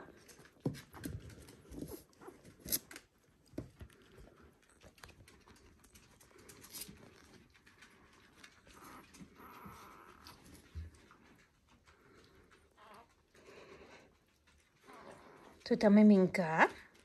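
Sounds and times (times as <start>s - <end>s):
puppies grunting and squeaking: 4.0s - 15.8s.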